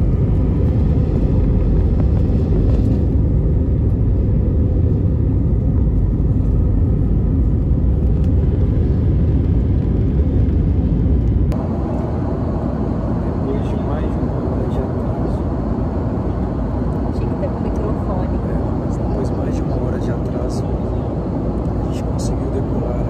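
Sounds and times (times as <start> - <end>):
jet engines rumbling in cabin: 0.0 - 23.0.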